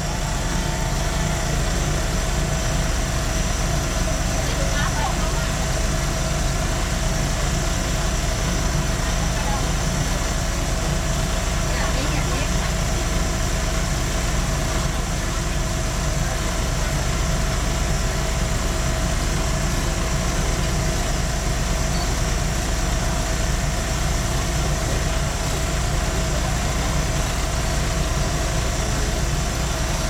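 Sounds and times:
diesel railcar engine idling: 0.0s - 30.0s.

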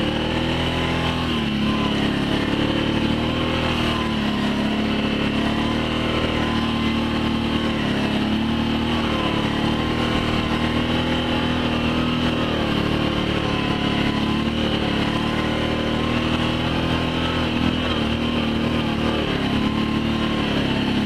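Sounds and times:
small vehicle engine running: 0.0s - 21.0s.

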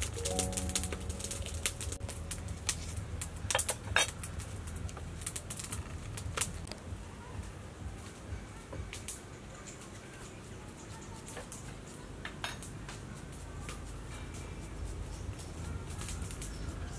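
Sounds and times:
clicks and rustles of stalks: 0.0s - 6.9s, 8.0s - 16.9s
low hum: 0.0s - 7.1s.

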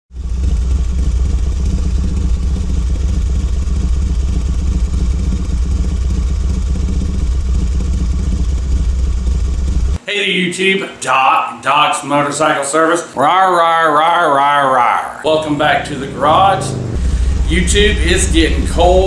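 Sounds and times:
motorcycle engine running: 0.1s - 10.0s, 15.3s - 19.0s.

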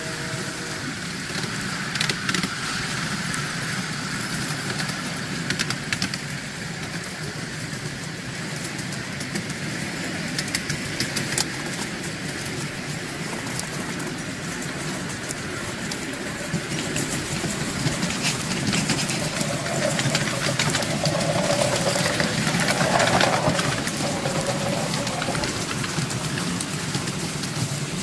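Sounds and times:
train wheels rumbling on rail: 0.0s - 28.0s
sharp clicks of wheels on track: 1.2s - 28.0s.

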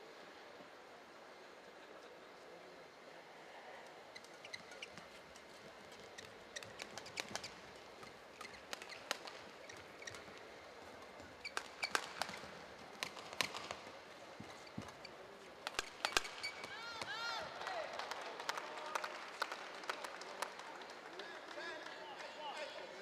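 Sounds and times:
low arena background: 0.0s - 23.0s
shoes squeaking on court: 4.1s - 16.8s
racket striking shuttlecock: 11.4s - 13.8s.

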